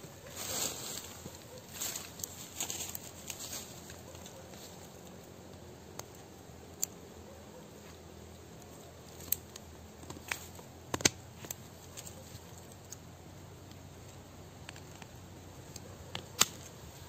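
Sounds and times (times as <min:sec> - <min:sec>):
pruning shears snipping roots: 0:15.8 - 0:16.8.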